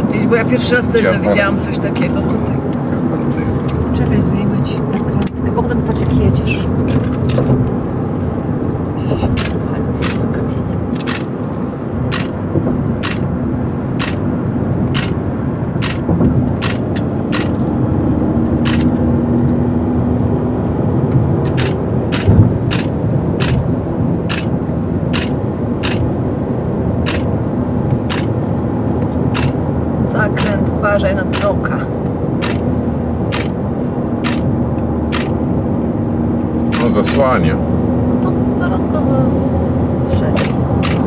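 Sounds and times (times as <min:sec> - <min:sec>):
car road and engine noise: 0:00.0 - 0:41.0
camera shutter clicking: 0:18.7 - 0:18.9, 0:35.1 - 0:35.4.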